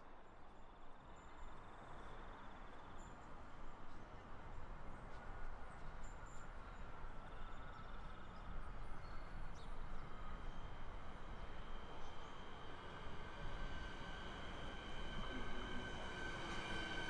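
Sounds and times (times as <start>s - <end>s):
electric train rumble: 6.8s - 17.0s.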